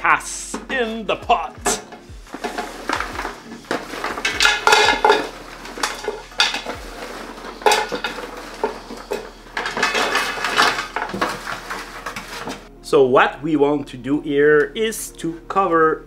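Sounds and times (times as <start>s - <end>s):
bones clattering into pot: 1.6s - 12.7s
spatula scraping metal pan: 1.7s - 12.7s.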